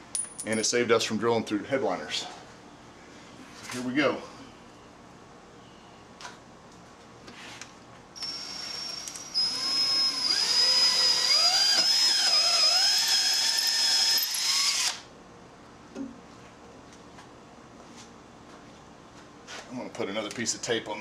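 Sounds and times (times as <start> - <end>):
cordless drill whining: 8.2 - 15.0.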